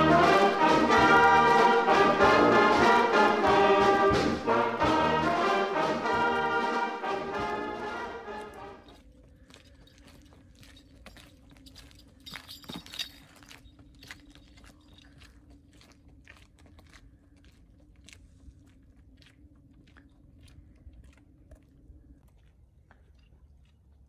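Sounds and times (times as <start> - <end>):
footsteps on wet cobblestones: 8.2 - 24.0.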